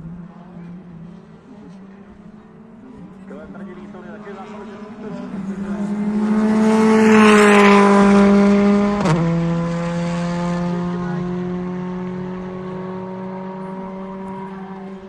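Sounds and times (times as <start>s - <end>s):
rally car engine passing: 0.0s - 15.0s.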